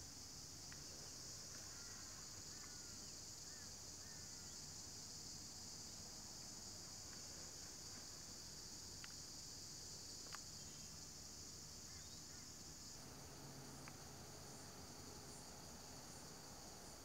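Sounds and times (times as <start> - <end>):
insects chorus: 0.0 - 17.0
faint clicks: 9.0 - 9.2, 13.8 - 14.1.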